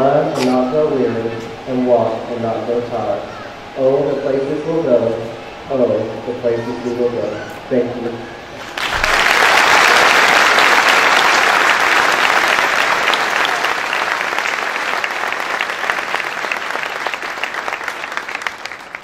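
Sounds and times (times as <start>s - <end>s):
audience applauding: 8.6s - 19.0s.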